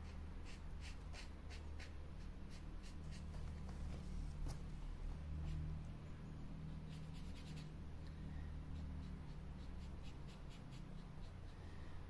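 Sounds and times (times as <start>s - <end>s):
marker tip scratching on wood: 0.0s - 4.6s, 6.9s - 7.7s, 8.7s - 11.6s.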